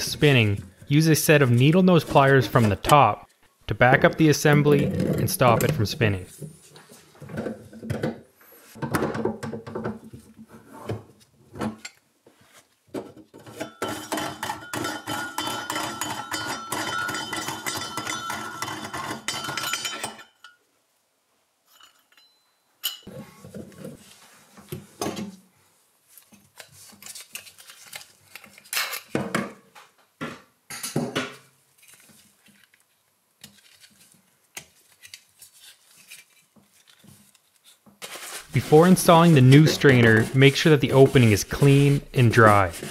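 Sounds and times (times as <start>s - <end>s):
continuous rasping metal scrape: 13.4s - 20.1s, 38.0s - 42.9s
metal clinks: 21.7s - 23.1s.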